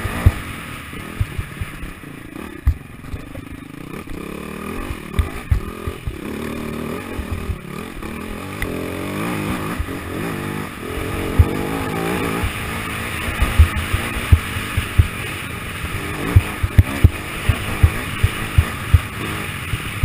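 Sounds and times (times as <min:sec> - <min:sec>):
motorcycle engine revving: 0:00.0 - 0:20.0
sharp thumps: 0:01.2 - 0:08.8, 0:11.0 - 0:12.7, 0:13.3 - 0:15.2, 0:16.2 - 0:19.1.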